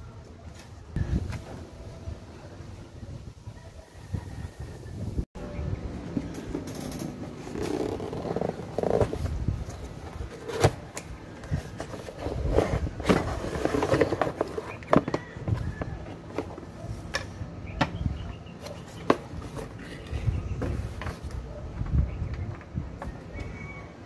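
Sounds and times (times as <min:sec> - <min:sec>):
cardboard rustling: 0:07.2 - 0:16.9.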